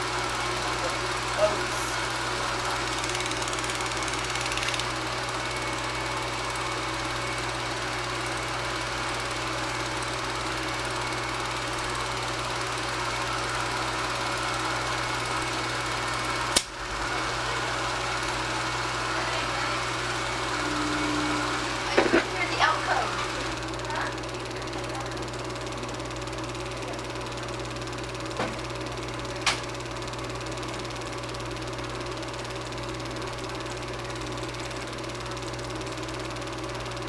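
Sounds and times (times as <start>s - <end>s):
film projector whirring: 0.0s - 37.0s
sharp click: 16.5s - 16.7s.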